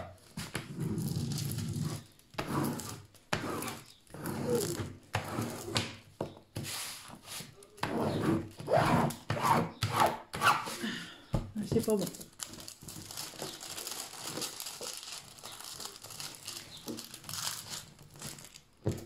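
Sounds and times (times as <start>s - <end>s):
plastic scraper rubbing on film: 0.4s - 6.0s, 6.6s - 10.8s.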